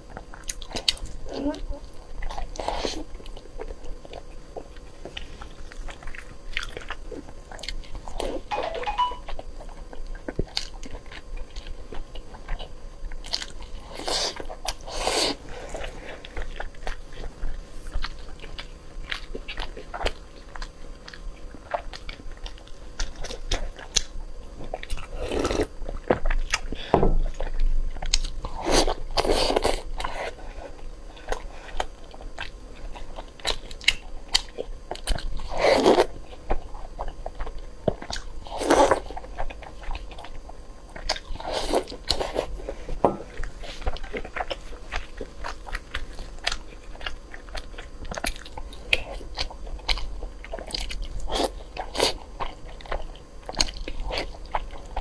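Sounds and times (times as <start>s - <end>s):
person chewing food: 0.0s - 55.0s.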